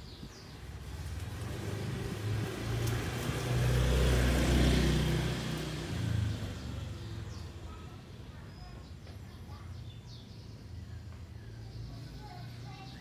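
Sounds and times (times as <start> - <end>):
motor vehicle passing: 0.3 - 9.0.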